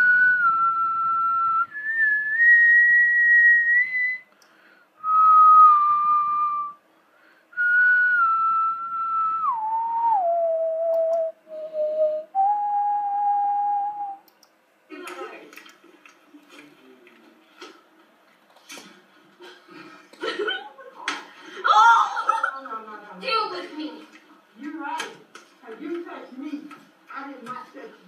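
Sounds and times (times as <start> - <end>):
person whistling a slow tune: 0.0 - 4.3, 5.0 - 6.8, 7.6 - 14.2.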